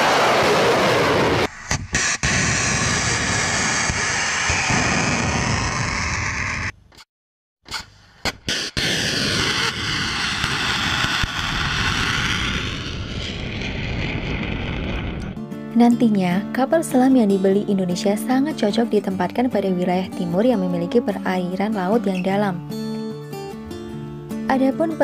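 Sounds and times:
rocket roar: 0.0s - 6.7s, 8.5s - 15.4s.

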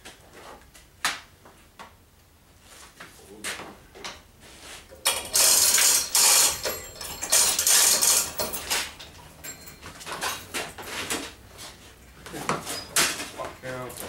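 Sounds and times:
metal ratcheting and clattering: 5.0s - 10.7s.

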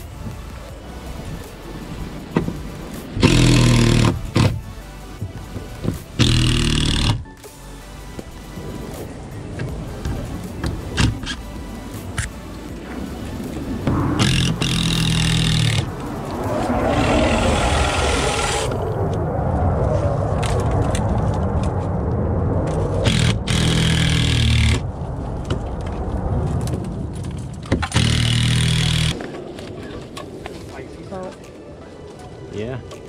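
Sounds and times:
cordless power tool motor running: 28.0s - 29.2s.

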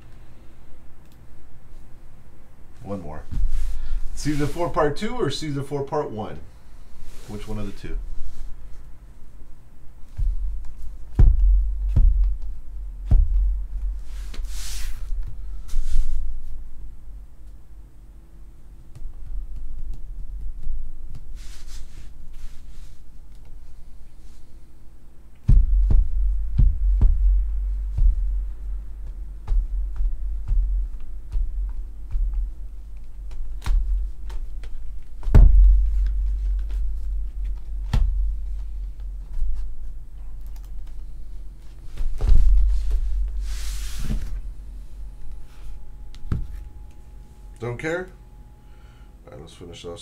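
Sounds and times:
heavy low thuds of boxes: 10.1s - 16.2s, 25.4s - 40.1s, 41.8s - 46.9s.

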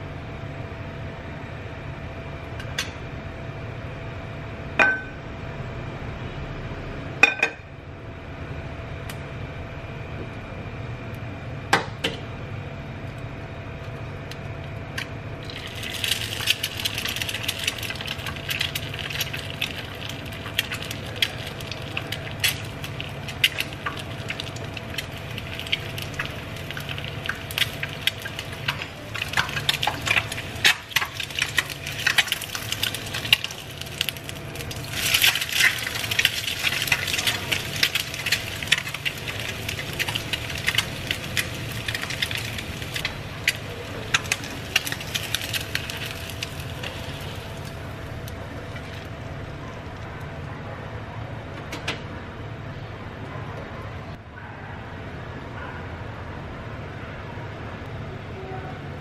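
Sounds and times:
egg frying in hot oil: 13.7s - 50.3s.

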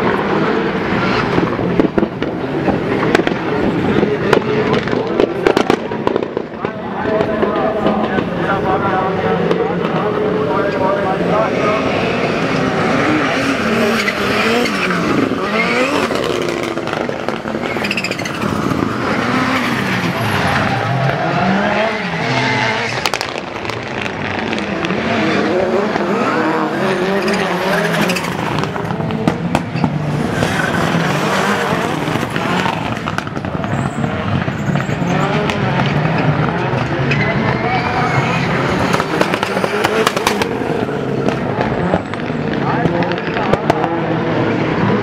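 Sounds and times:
race car engines revving: 0.0s - 45.0s
sharp cracks: 38.2s - 43.9s.

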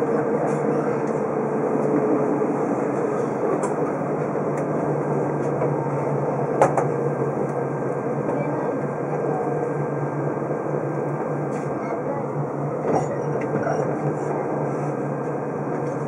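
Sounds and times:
faint train whine: 0.0s - 16.0s
train cabin rumble: 0.0s - 16.0s.

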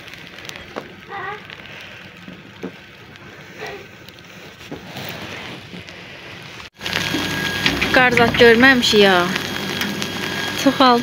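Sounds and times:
outdoor hiss in snowfall: 0.0s - 7.9s.

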